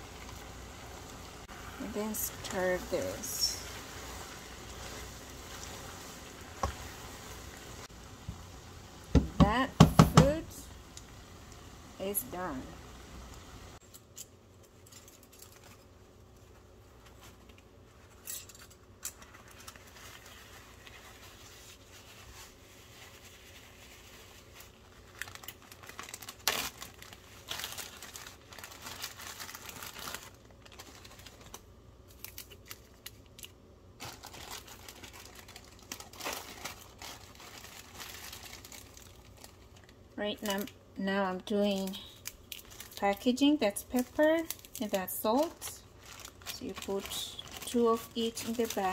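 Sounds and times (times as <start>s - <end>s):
plastic bags crinkling: 14.6s - 48.9s.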